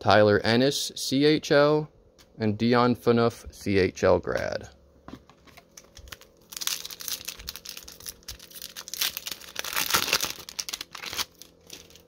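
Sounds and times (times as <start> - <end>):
foil wrapper tearing and crinkling: 5.8 - 12.0.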